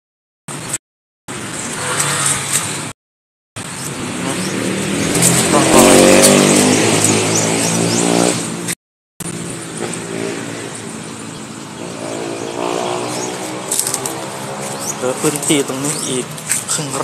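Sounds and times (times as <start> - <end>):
brush cutter engine whining: 12.9 - 16.1.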